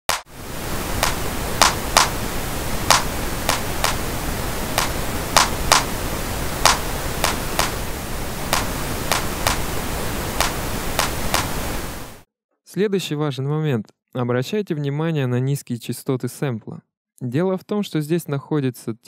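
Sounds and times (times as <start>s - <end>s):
pink noise hissing: 0.1s - 12.2s
electronic hand clap: 1.0s - 2.2s, 2.9s - 4.0s, 4.8s - 5.9s, 6.6s - 7.8s, 8.5s - 9.7s, 10.4s - 11.6s.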